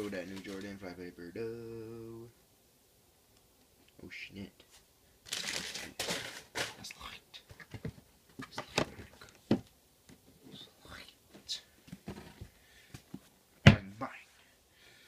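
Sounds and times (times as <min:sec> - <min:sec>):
wrapping paper rustling: 0:00.0 - 0:00.9, 0:05.2 - 0:06.9
handling knocks and taps: 0:07.5 - 0:10.3.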